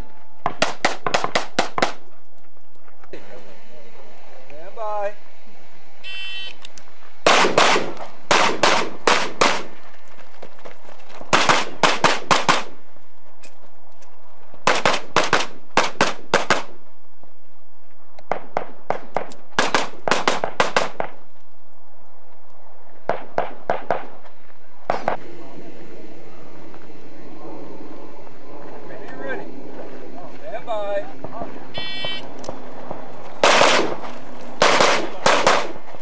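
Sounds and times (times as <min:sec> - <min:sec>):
handgun shots in rapid strings: 0:11.4 - 0:12.7, 0:33.4 - 0:34.0, 0:34.6 - 0:35.8.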